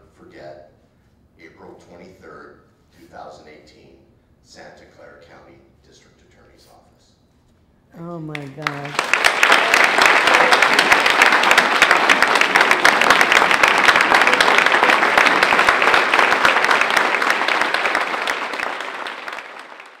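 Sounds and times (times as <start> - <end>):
audience applauding: 8.3 - 20.0.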